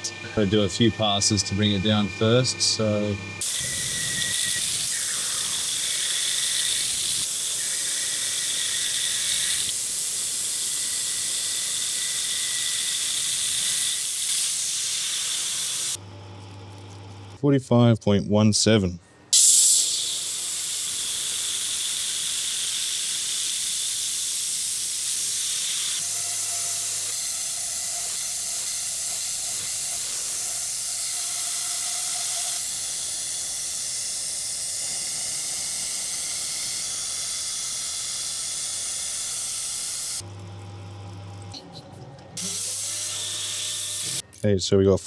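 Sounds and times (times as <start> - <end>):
lathe low hum: 0.0 - 13.8
lathe cutting hiss: 0.0 - 16.0, 19.3 - 40.2.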